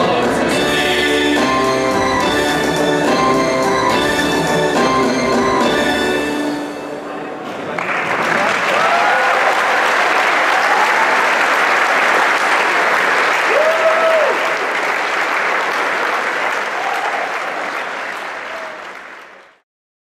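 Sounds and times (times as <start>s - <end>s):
audience applauding: 7.6s - 19.6s.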